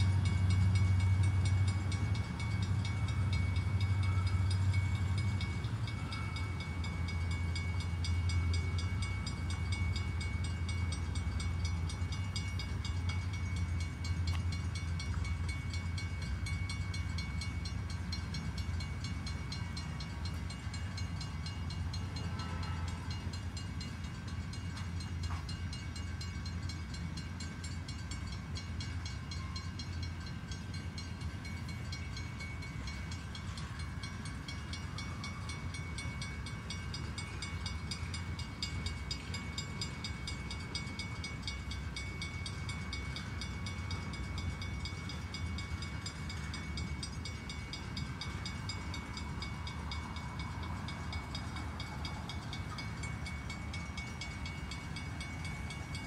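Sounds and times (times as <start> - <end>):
train wheels rumbling on rails: 0.0 - 56.0.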